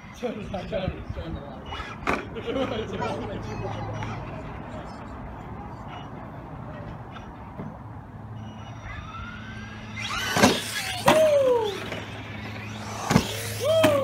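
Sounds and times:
electric toy truck motor whine: 8.3s - 14.0s
sharp knocks from landings: 10.0s - 14.0s.

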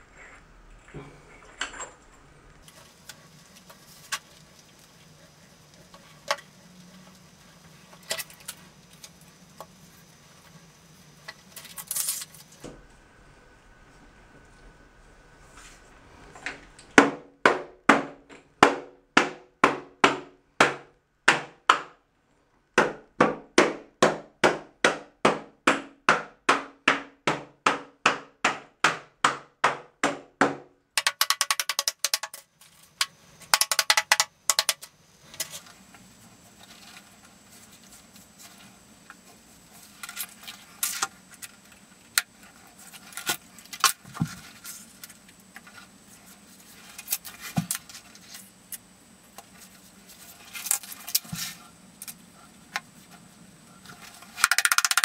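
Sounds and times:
sharp clicks: 54.4s - 55.0s.

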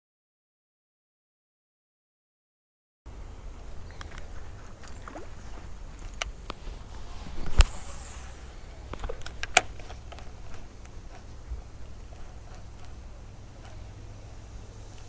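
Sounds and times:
low steady rumble: 3.1s - 15.0s
fishing line hiss: 3.6s - 15.0s
fishing rod cast snap: 7.3s - 10.9s.

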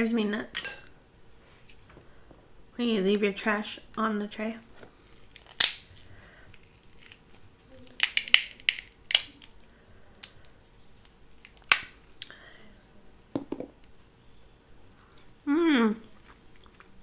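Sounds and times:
crab shell cracking: 5.3s - 5.9s, 6.5s - 12.4s.

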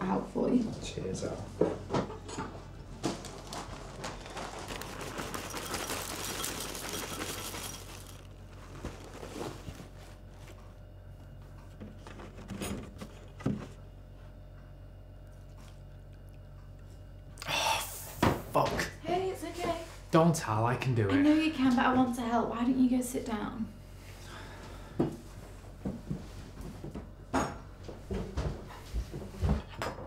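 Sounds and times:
cereal poured into a bowl: 4.5s - 8.3s.

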